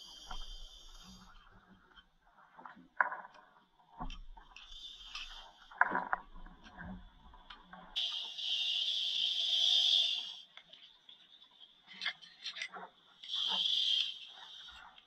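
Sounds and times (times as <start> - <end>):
in-breath hiss through regulator: 0.0 - 1.3, 4.7 - 5.7, 8.0 - 10.5, 13.2 - 15.0.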